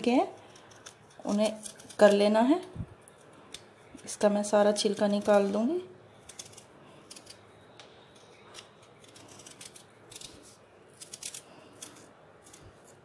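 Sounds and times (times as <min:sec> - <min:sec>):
knife paring watermelon rind: 0:00.0 - 0:02.4, 0:04.8 - 0:13.0.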